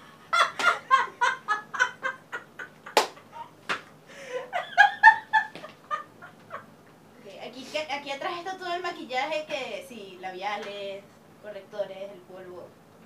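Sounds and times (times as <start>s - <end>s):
women laughing hard: 0.0s - 3.6s, 4.2s - 6.7s.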